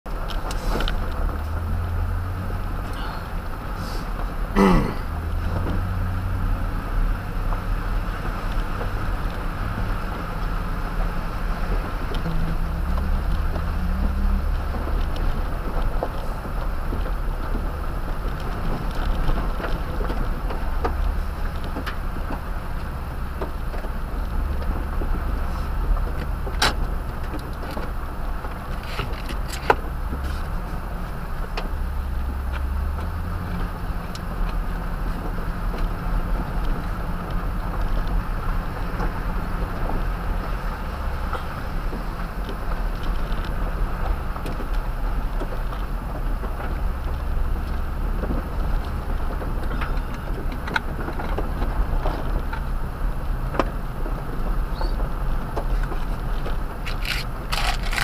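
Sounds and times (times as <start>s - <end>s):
low engine drone: 0.1s - 17.9s
tyres on gravel: 8.9s - 58.0s
clicks and rattles: 55.6s - 58.0s.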